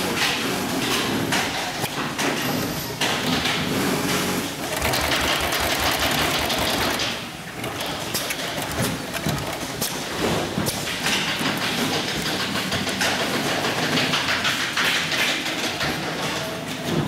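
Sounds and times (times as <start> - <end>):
sewing machine motor hum: 3.7 - 10.0
sewing machine needle clatter: 4.7 - 10.0.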